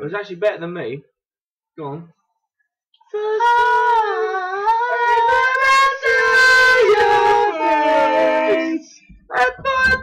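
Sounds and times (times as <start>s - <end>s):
person singing a long high note: 3.1s - 8.8s.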